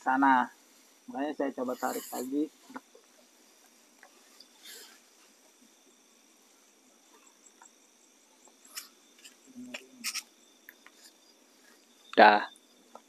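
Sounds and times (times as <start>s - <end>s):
crickets chirping: 0.0s - 13.0s
soft clicks and rustles: 2.0s - 5.7s.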